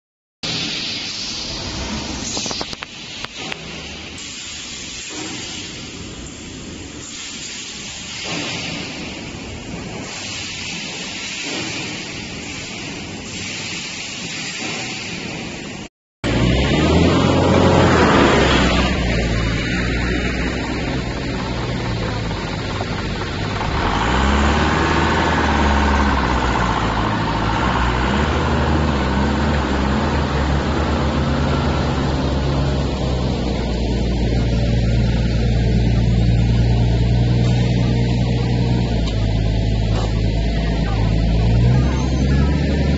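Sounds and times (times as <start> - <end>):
steady hissing noise: 0.4 - 15.9, 18.8 - 40.4
forklift engine revving: 16.2 - 42.9.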